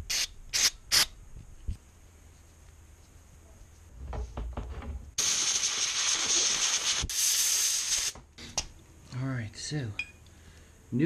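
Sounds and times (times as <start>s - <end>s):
aerosol spray hissing: 5.2s - 8.2s.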